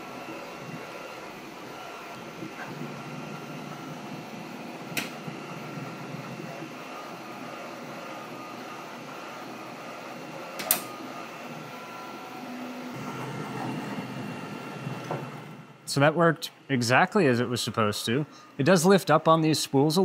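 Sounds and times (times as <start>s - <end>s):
printer machine hum: 0.0s - 20.0s
filament cutter clicks: 10.6s - 10.9s.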